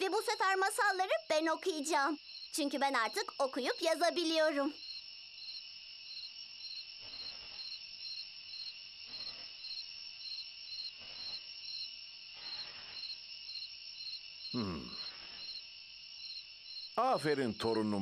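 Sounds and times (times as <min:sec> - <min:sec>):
crickets chirping: 0:00.0 - 0:18.0.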